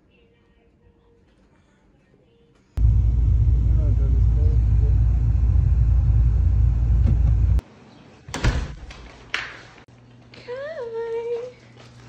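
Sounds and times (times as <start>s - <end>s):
road rumble inside car: 2.8s - 7.6s.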